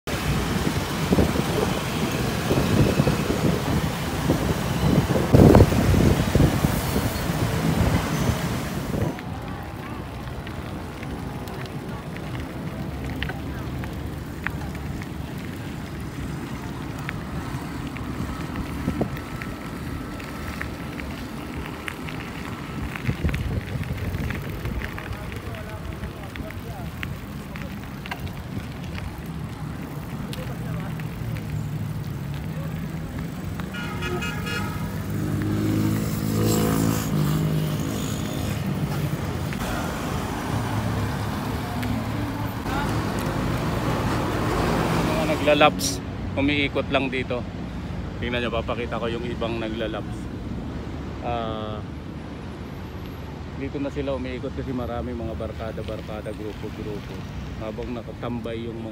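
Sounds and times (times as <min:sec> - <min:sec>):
traffic hum: 0:00.0 - 0:58.9
wind buffeting microphone: 0:00.1 - 0:30.2
vehicle engine passing by: 0:34.0 - 0:45.8.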